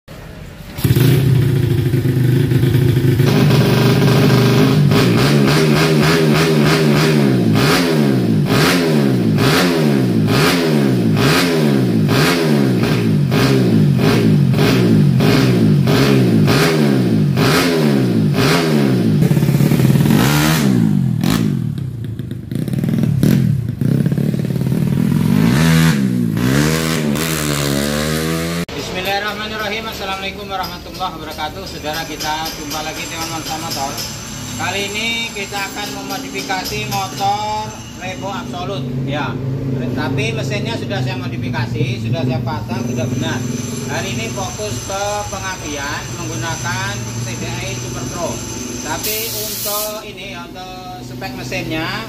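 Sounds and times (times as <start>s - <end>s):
motorcycle engine revving: 0.4s - 30.6s, 31.8s - 52.0s.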